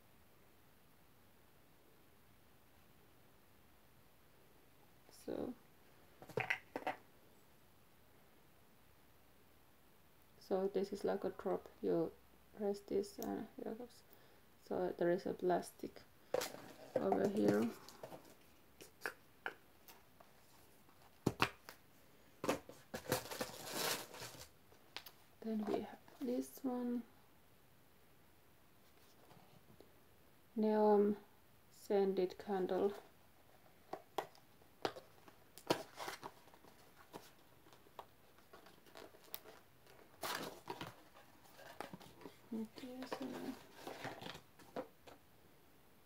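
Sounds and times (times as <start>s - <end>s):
hands handling bottle and packaging: 6.2s - 7.0s, 16.3s - 21.8s, 33.8s - 45.2s.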